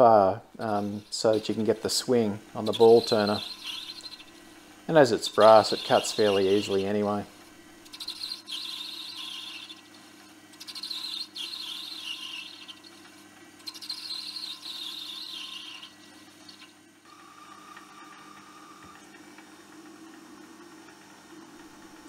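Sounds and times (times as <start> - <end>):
lathe motor humming: 0.0 - 22.0
lathe tool squealing: 0.6 - 7.1, 7.8 - 17.4.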